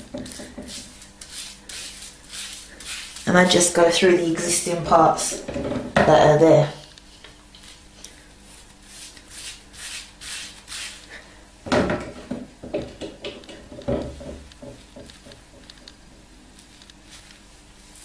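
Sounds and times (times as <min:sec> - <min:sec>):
hands rubbing hair: 0:00.3 - 0:05.3.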